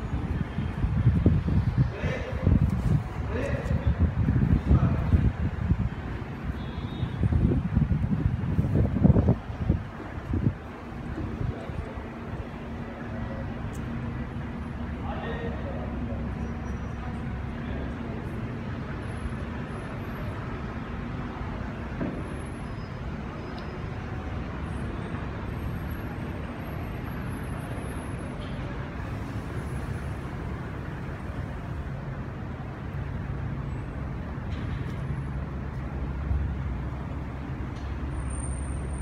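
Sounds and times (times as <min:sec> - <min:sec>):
road traffic rumble: 0:00.0 - 0:39.0
vehicle engine running nearby: 0:00.0 - 0:39.0.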